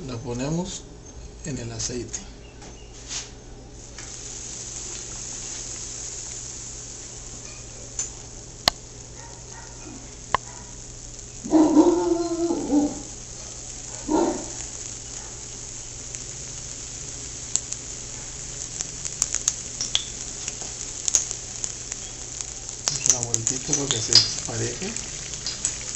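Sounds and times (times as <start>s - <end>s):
corn dog sizzling in hot oil: 3.7s - 25.9s
loud pitched cries: 11.5s - 13.1s.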